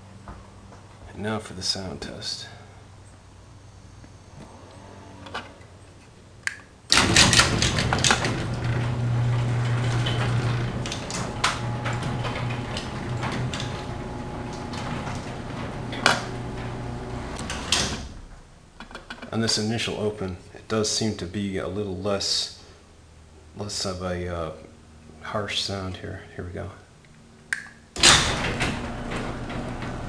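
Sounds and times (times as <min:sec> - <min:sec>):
garage door opener motor hum: 0:06.9 - 0:19.6, 0:28.0 - 0:30.0
trolley and door rattling: 0:06.9 - 0:19.7, 0:28.0 - 0:30.0.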